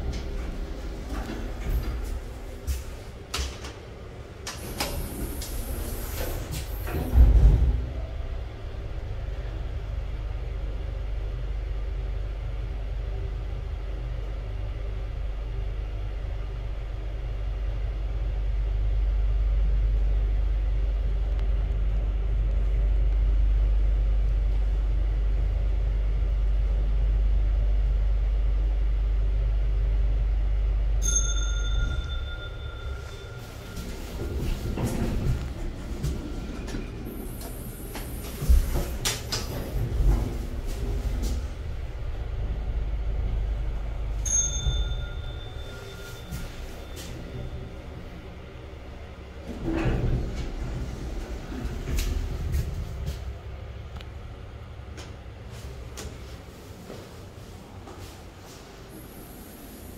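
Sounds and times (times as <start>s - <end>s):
lift doors sliding shut: 0.0s - 8.2s, 49.3s - 53.3s
lift low rumble: 0.0s - 59.9s.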